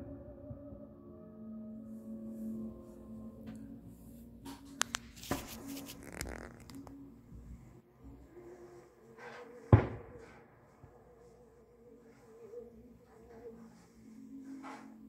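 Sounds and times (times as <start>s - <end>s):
loud fireworks boom: 9.7s - 10.4s
distant fireworks bangs: 9.7s - 10.9s.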